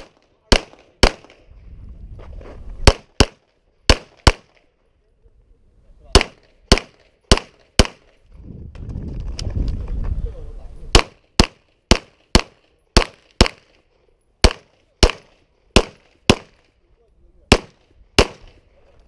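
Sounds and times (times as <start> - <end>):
pistol shots: 0.0 - 1.4, 2.8 - 4.7, 6.1 - 8.2, 10.9 - 13.8, 14.4 - 16.8, 17.5 - 18.6.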